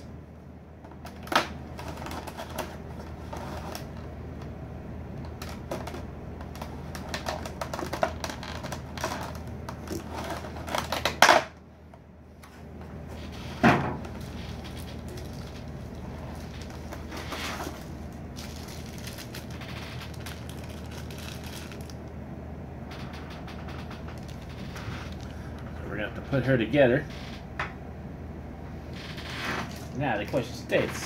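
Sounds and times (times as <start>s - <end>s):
plastic package crackling: 1.0s - 4.0s, 5.2s - 11.2s, 14.0s - 22.1s.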